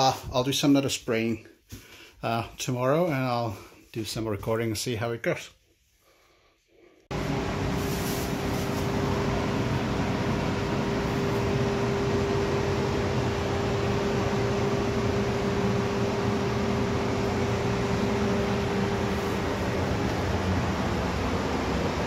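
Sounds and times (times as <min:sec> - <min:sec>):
extraction fan running: 0:07.1 - 0:22.0.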